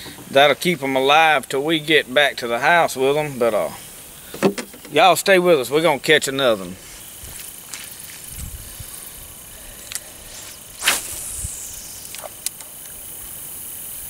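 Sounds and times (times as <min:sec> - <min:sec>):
fishing line hissing off reel: 0:06.6 - 0:14.0
fishing rod swishing: 0:10.3 - 0:12.4.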